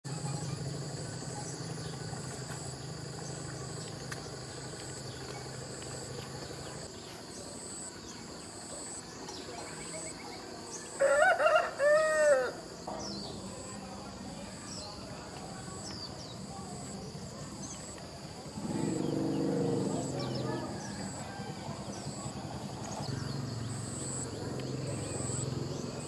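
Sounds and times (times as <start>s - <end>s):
insects buzzing: 0.1s - 26.0s
rooster crowing: 11.0s - 12.6s, 20.4s - 21.9s.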